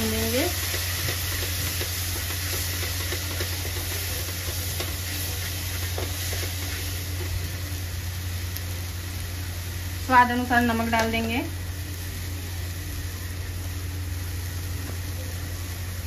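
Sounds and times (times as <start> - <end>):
paste sizzling in oil: 0.0 - 16.0
steady low hum: 0.0 - 16.0
spatula tapping pan: 0.6 - 7.3.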